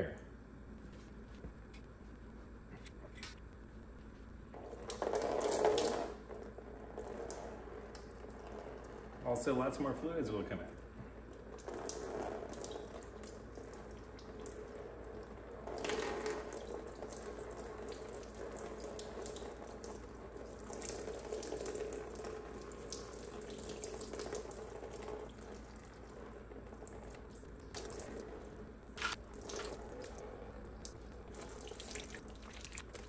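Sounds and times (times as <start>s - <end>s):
fluid trickling and splashing: 10.7s - 33.0s.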